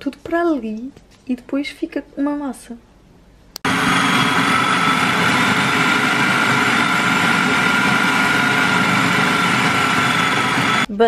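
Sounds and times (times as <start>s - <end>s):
food processor motor whine: 3.6s - 10.9s.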